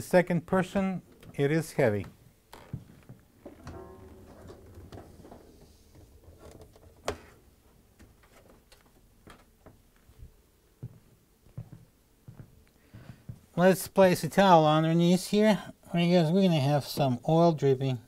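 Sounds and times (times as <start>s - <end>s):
sheet metal scrapes and knocks: 3.5s - 7.3s.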